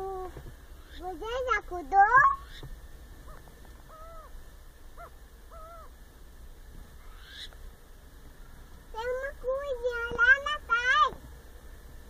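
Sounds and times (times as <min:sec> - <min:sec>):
owl calls: 0:00.0 - 0:06.0, 0:07.0 - 0:07.6.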